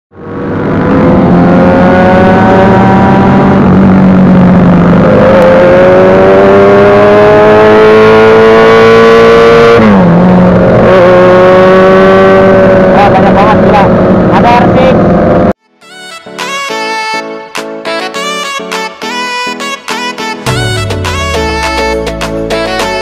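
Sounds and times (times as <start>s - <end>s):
motorcycle engine accelerating: 0.1s - 15.6s.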